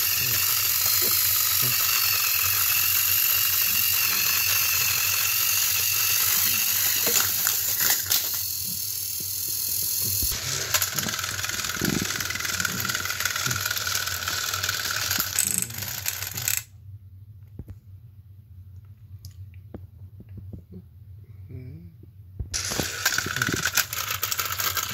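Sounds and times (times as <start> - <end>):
steady motor whine: 0.0 - 15.5
toy train motors whirring: 0.0 - 16.7, 22.6 - 24.9.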